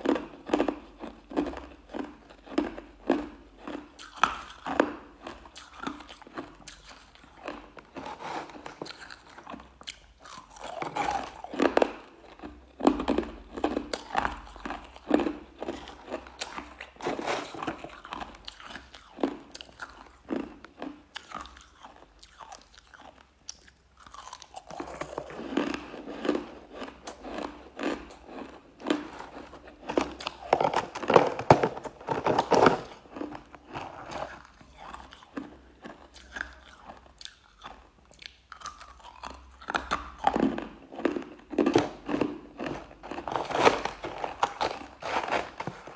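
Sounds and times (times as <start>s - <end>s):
crushed ice crunching: 15.1s - 18.3s, 41.1s - 45.9s.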